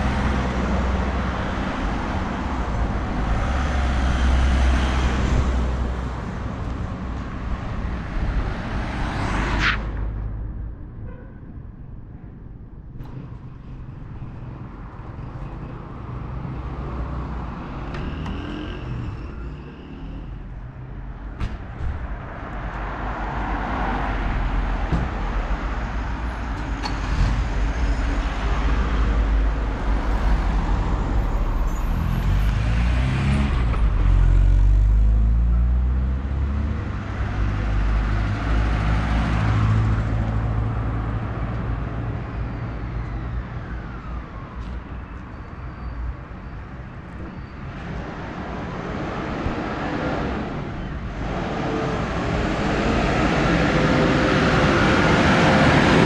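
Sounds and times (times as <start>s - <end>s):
vehicle engines in road traffic: 0.0s - 56.0s.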